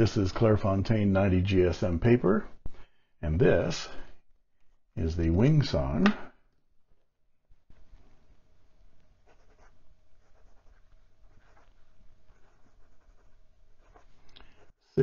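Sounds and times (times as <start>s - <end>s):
fountain pen nib scratching paper: 9.2s - 14.2s.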